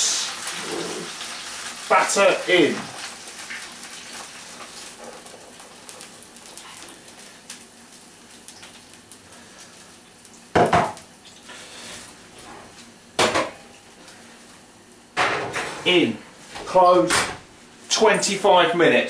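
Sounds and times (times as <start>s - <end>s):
batter sizzling in hot fat: 0.0s - 13.0s.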